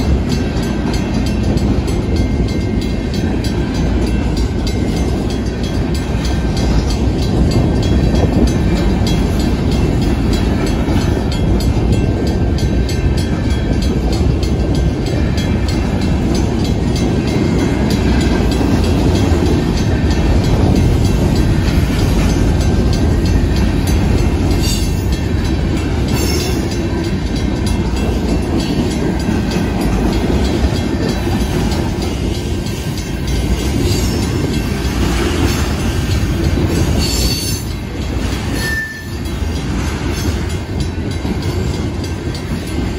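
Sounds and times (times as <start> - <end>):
clickety-clack over rail joints: 0.0 - 42.9
train wheels rumbling on rails: 0.0 - 42.9
high-pitched wheel squeals: 38.5 - 39.2.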